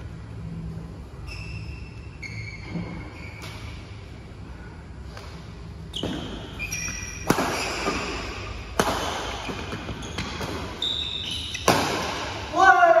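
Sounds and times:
court shoes squeaking: 0:01.0 - 0:04.2, 0:05.1 - 0:12.4
rackets striking shuttlecock: 0:06.0 - 0:10.8, 0:11.4 - 0:12.5.

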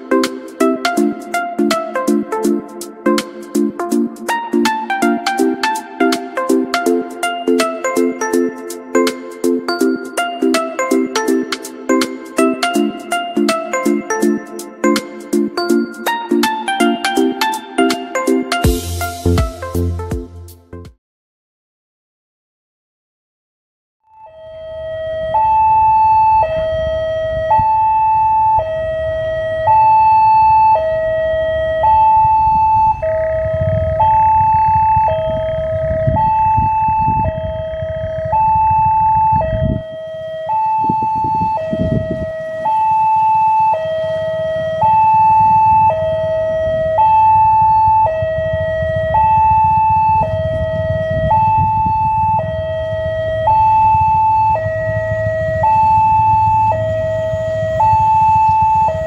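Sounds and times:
two-tone level-crossing alarm: 0:00.0 - 0:19.6, 0:24.2 - 0:59.0
low rumble: 0:48.3 - 0:59.0.

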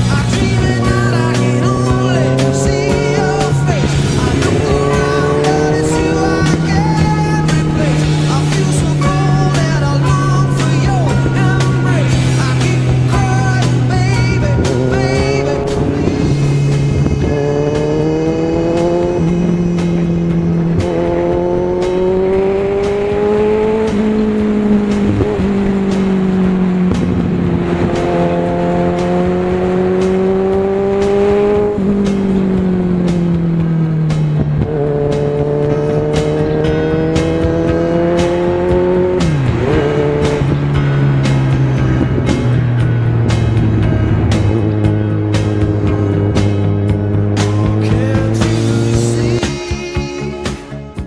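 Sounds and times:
motorcycle engine changing gears: 0:00.0 - 0:51.0.

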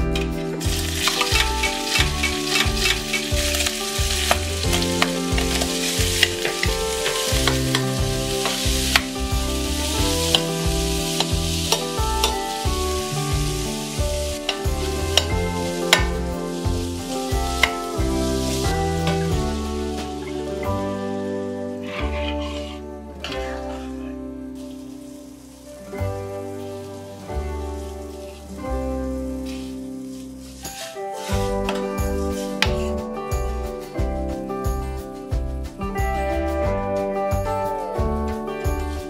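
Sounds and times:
food sizzling in oil: 0:00.2 - 0:32.6
metal spatula scraping pan: 0:21.6 - 0:24.8.

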